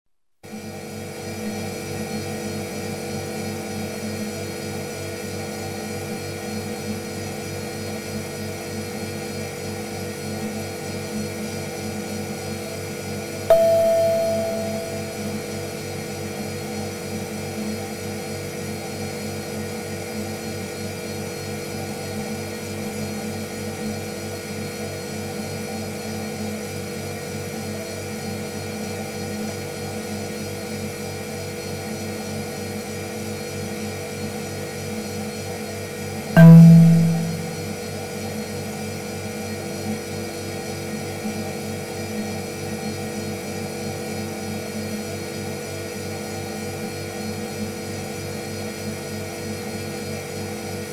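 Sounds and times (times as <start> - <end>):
sudden click: 13.5 - 15.3, 36.4 - 37.6
short loud low tone: 13.5 - 15.4, 36.4 - 37.6.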